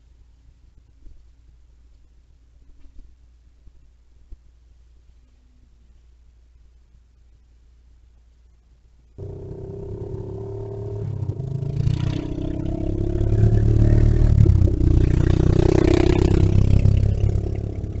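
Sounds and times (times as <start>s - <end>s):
off-road vehicle engine running: 9.2s - 18.0s.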